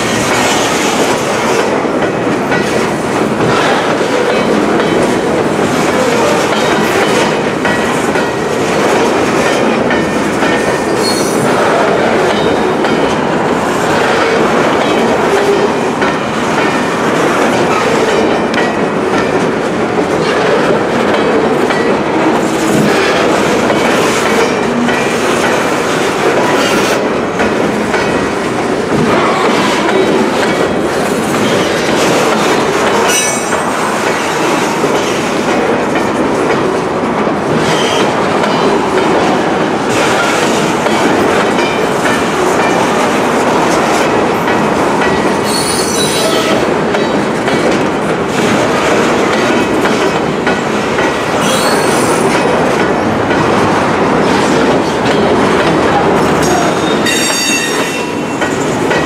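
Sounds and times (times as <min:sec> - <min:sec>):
train wheels clattering over rail joints: 0:00.0 - 0:59.0
high wheel squeals: 0:51.4 - 0:52.3, 0:56.8 - 0:58.1.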